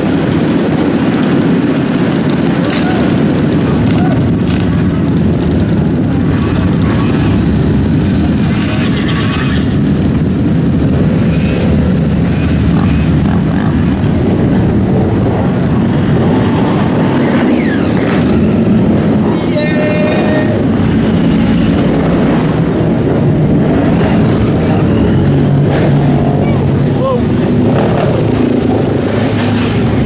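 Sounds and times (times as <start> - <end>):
motorcycle engines riding in a pack: 0.0 - 30.0.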